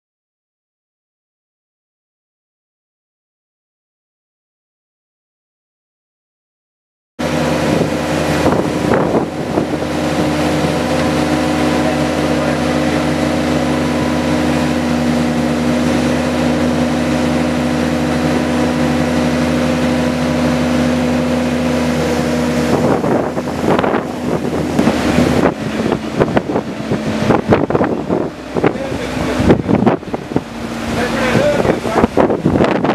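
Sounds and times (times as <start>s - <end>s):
heavy vehicle engine running: 7.2s - 32.9s
wind buffeting microphone: 7.2s - 32.9s
knocks and rumbling: 21.9s - 32.9s.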